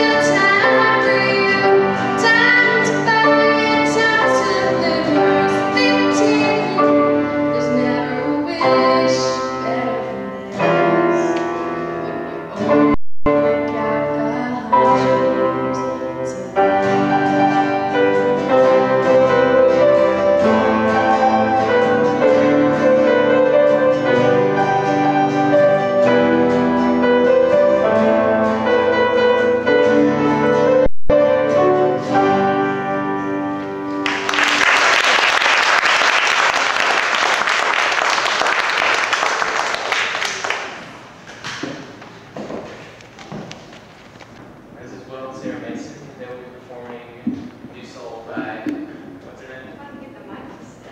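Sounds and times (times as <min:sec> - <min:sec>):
grand piano solo: 0:00.0 - 0:41.0
audience applause: 0:34.0 - 0:41.1.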